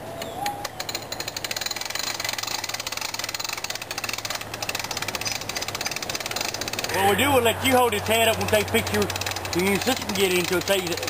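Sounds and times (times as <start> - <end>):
atv engine idling: 2.8 - 11.0.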